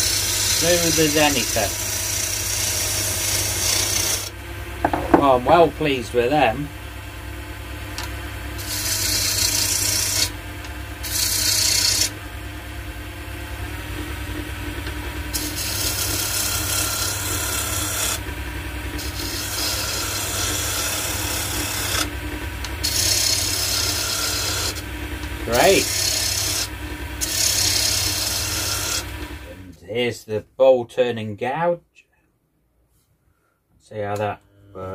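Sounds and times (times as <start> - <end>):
gouge shaving spinning wood: 0.0 - 4.3, 8.4 - 12.3, 13.6 - 29.6
wood lathe humming: 0.0 - 29.7.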